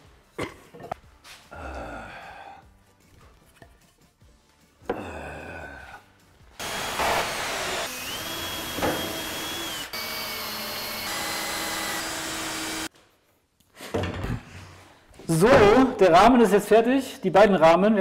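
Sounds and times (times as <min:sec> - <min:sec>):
woodworking power tools whining: 0:06.6 - 0:12.9.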